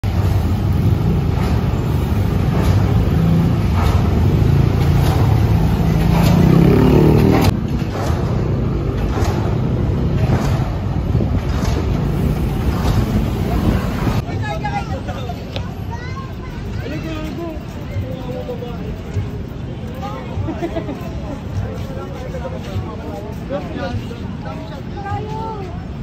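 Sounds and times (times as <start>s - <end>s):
motorcycle traffic passing: 0.0s - 14.5s
engine rising in pitch: 4.6s - 7.6s.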